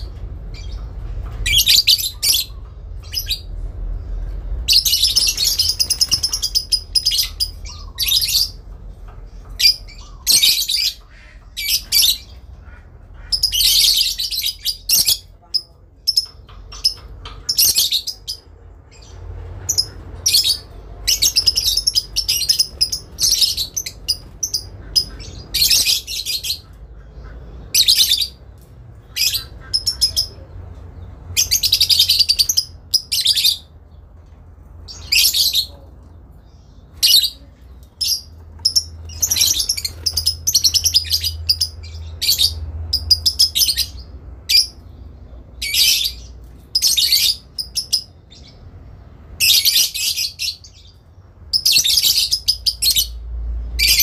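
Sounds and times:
lovebirds chattering: 0.0 - 54.0.

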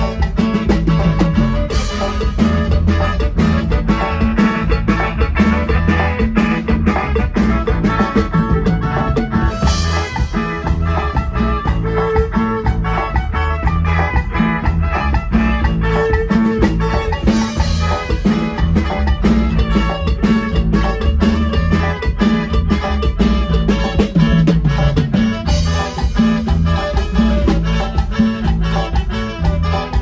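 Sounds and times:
latin dance band over speakers: 0.0 - 30.0
steady drum beat: 0.0 - 30.0
strong bass: 0.0 - 30.0.

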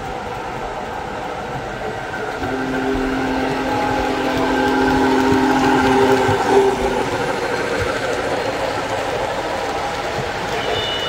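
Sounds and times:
model train running on track: 0.0 - 11.0
model train steam whistle: 2.4 - 11.0.

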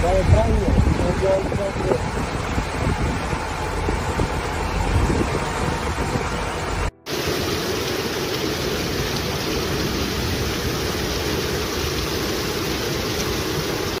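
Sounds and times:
floodwater rushing: 0.0 - 14.0.

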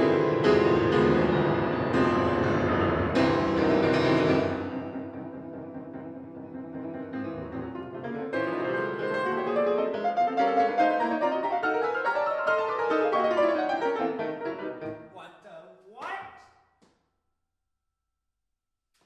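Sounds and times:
fast grand piano: 0.0 - 15.0.

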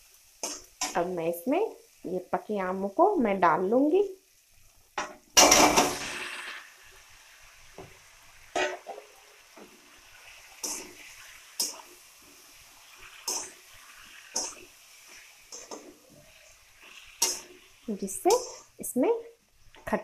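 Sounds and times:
food splashing into hot oil: 0.0 - 2.8, 4.0 - 20.0
metal spatula scraping a pan: 8.4 - 18.8.

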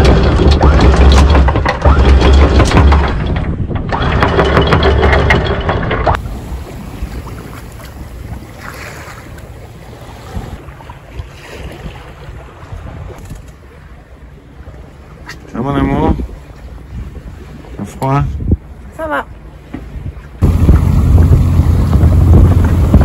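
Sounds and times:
anchor chain clattering: 0.1 - 6.1
water wash: 4.0 - 18.2, 19.8 - 23.0
wind on microphone: 6.0 - 18.8, 19.8 - 23.0
steady low hum: 20.4 - 23.0.

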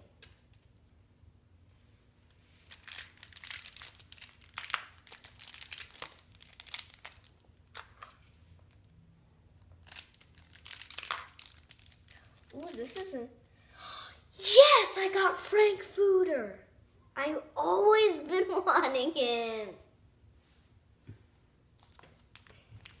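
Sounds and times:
plastic wrapper crinkling and tearing: 2.6 - 8.1, 9.8 - 13.2, 21.8 - 23.0.

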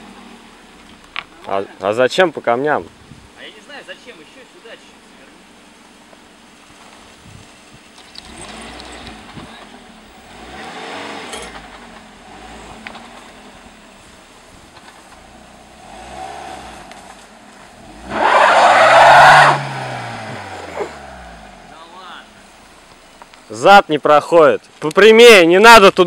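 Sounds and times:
car engine revving: 8.0 - 23.5.

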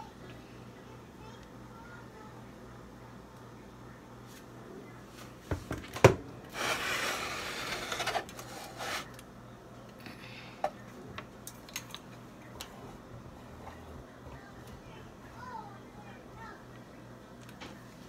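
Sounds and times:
rubbing scrape on hard surface: 6.5 - 9.2.

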